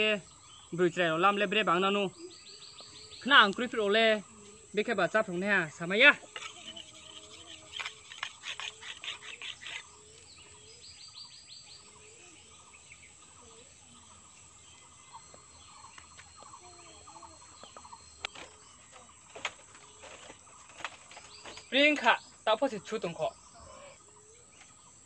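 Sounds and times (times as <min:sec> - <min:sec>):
birds chirping: 0:00.0 - 0:25.0
insects: 0:00.0 - 0:25.0
knife rasping on whetstone: 0:06.3 - 0:10.0
footsteps on bamboo floor: 0:17.6 - 0:22.2.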